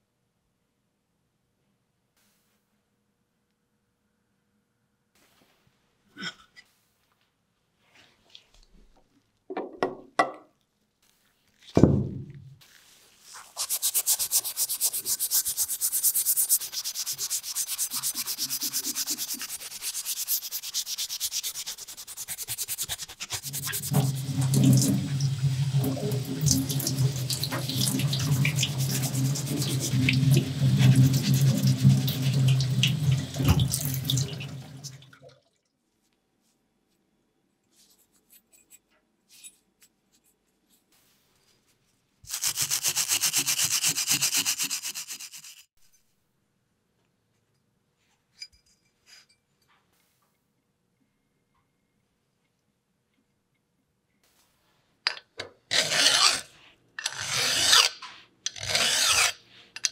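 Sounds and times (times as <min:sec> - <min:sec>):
thump: 0:11.8 - 0:12.6
scrubbing metal by hand: 0:13.2 - 0:34.8, 0:42.3 - 0:45.7.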